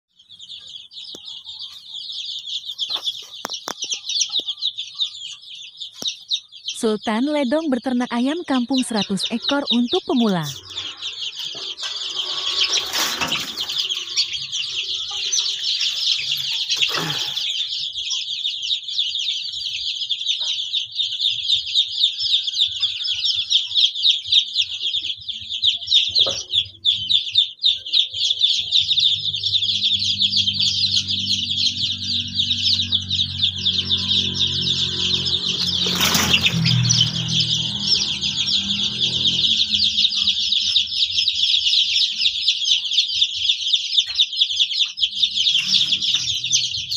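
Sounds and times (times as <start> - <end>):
chicks peeping: 0.1 - 46.9
low hum: 28.8 - 41.0.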